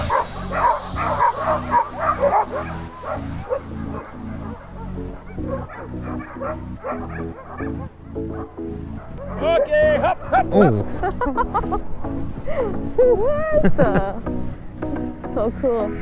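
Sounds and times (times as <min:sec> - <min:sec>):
dogs yipping and barking: 0:00.0 - 0:10.6
background music: 0:00.0 - 0:16.0.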